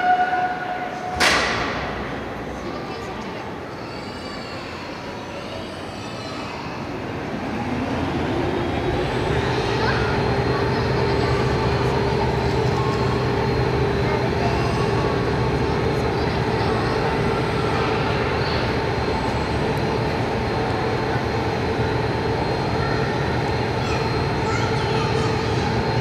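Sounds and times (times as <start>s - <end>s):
crane hoist humming: 0.0s - 26.0s.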